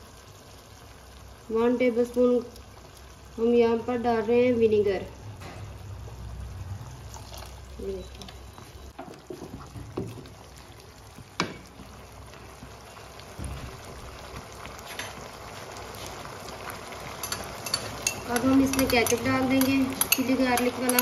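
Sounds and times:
sauce bubbling and popping: 2.4 - 3.3, 6.8 - 21.0.

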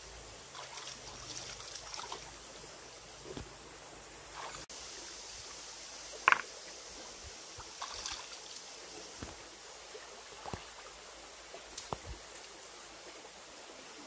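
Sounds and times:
stream flowing: 0.0 - 14.0
legs wading through water: 0.4 - 2.5, 7.4 - 12.2.

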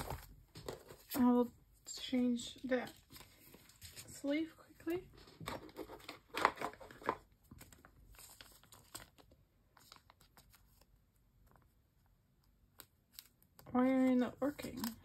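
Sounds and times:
plastic sleeve crinkling: 5.2 - 10.8.

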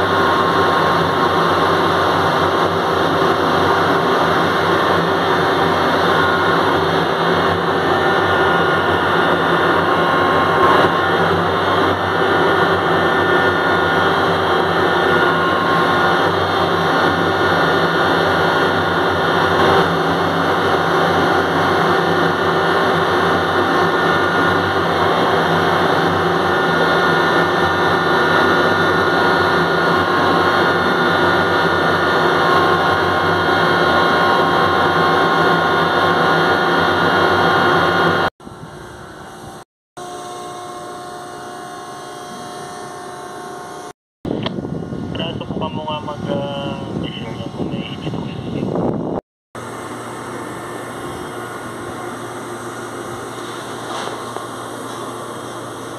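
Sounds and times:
crane motor humming and whining: 0.0 - 55.9
low hum: 0.0 - 55.9.

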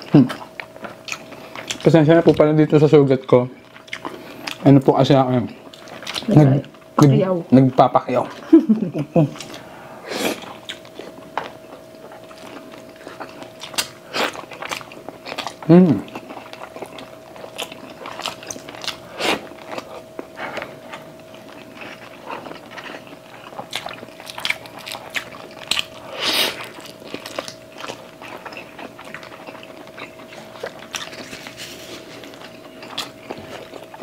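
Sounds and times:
faint steady hum: 0.0 - 34.0
chewing and lip smacks: 0.2 - 1.9, 3.6 - 4.6, 10.4 - 34.0.

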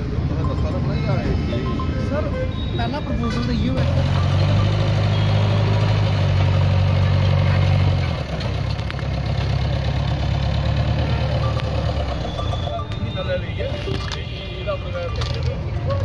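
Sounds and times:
diesel engine running: 3.3 - 14.1.

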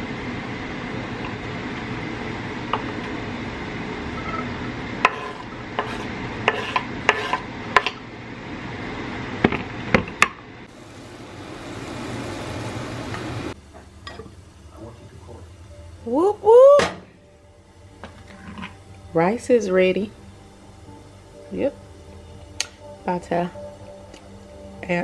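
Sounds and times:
knife on wooden cutting board: 5.0 - 7.9
food sizzling in frying pan: 10.7 - 14.7.

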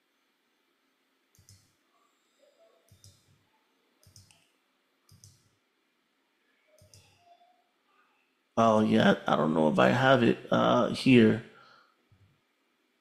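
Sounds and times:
computer mouse clicks: 1.3 - 1.8, 2.8 - 3.4, 4.0 - 5.6, 6.7 - 7.2.

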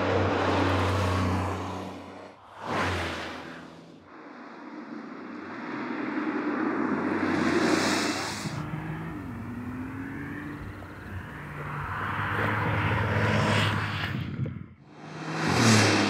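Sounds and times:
sports car engine: 7.0 - 16.0.

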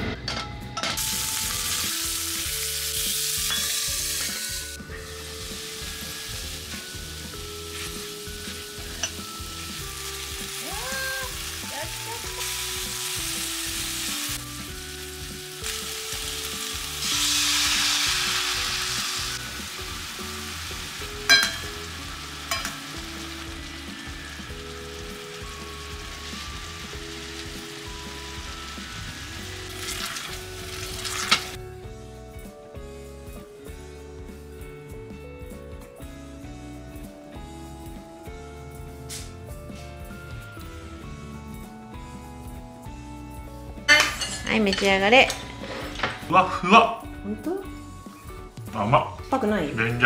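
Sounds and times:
fish sizzling in a frying pan: 1.0 - 31.6.

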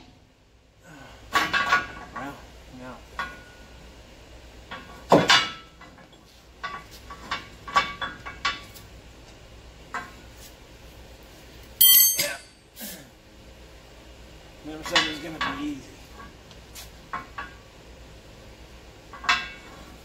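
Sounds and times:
metal tools clinking on steel: 11.8 - 12.6.

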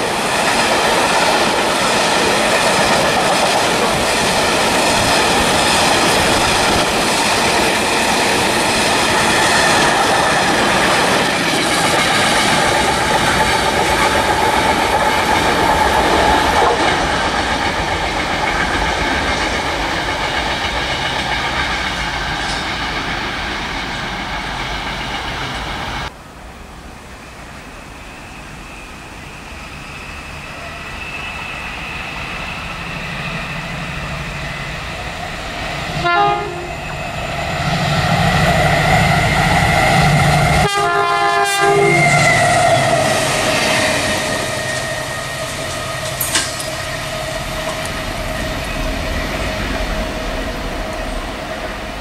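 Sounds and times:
diesel locomotive passing: 0.0 - 52.0
train horn: 35.9 - 37.0, 39.1 - 48.8.

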